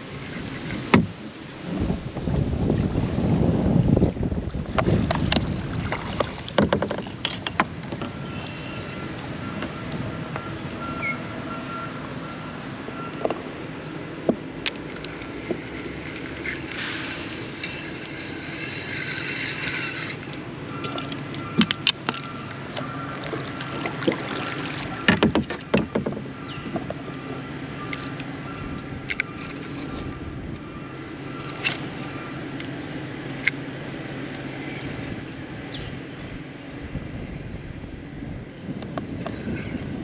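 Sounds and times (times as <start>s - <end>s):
water moving along kayak hull: 0.0s - 40.0s
paddle and rod clicks and knocks: 4.4s - 8.6s, 14.2s - 17.0s, 17.6s - 27.2s, 27.8s - 28.4s, 29.0s - 30.6s.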